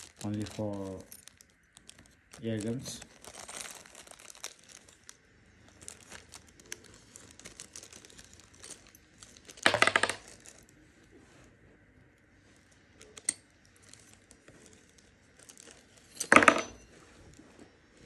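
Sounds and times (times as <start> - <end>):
plastic bag crinkling: 0.0 - 10.8, 12.6 - 16.2.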